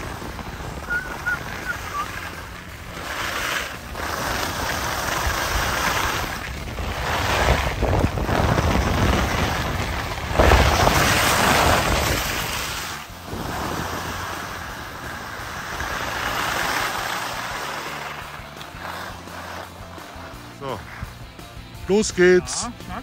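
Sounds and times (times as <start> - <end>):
wind buffeting microphone: 0.0 - 17.6.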